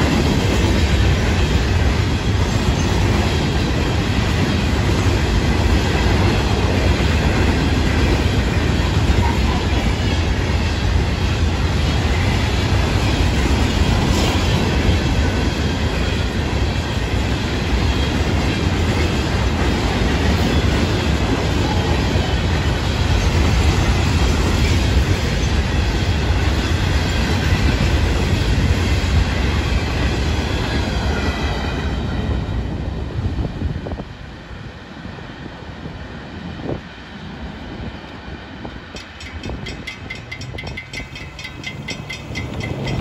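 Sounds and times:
freight train wheels rumbling: 0:00.0 - 0:43.0.

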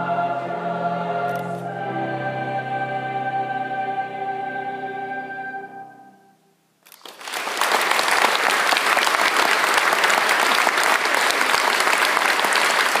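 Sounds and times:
audience applause: 0:07.0 - 0:13.0.

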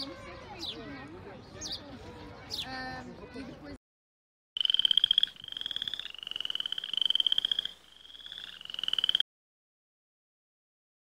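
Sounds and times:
frog trilling: 0:04.6 - 0:09.2.

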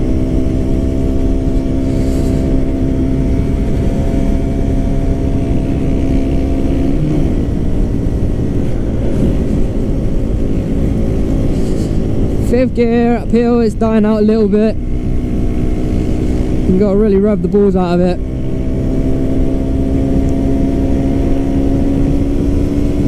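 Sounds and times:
motorcycle engine running: 0:00.0 - 0:23.0
wind rushing over microphone: 0:00.0 - 0:23.0.

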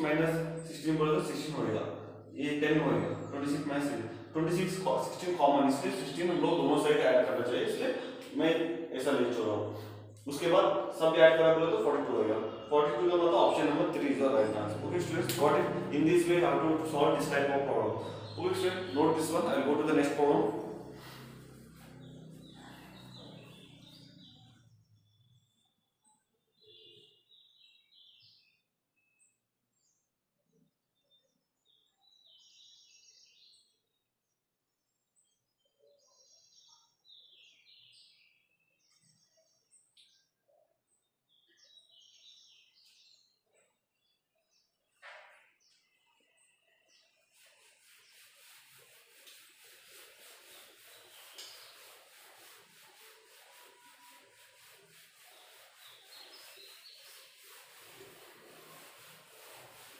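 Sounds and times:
faint bird chirping: 0:00.0 - 0:59.9
duster rubbing on whiteboard: 0:13.8 - 0:24.3, 0:47.0 - 0:59.9.

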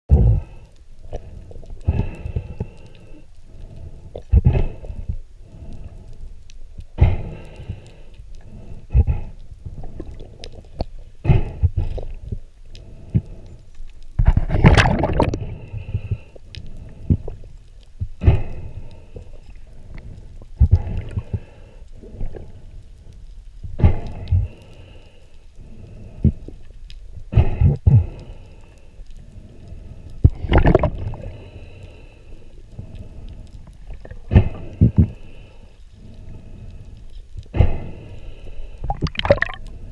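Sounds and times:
muffled underwater rumble: 0:00.1 - 0:39.9
underwater water rushing: 0:14.2 - 0:17.5, 0:29.9 - 0:32.1, 0:32.8 - 0:36.6, 0:37.5 - 0:39.9.

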